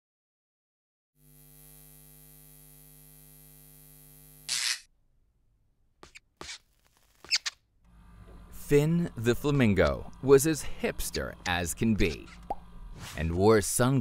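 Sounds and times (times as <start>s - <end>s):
neon sign buzzing: 1.2s - 4.9s.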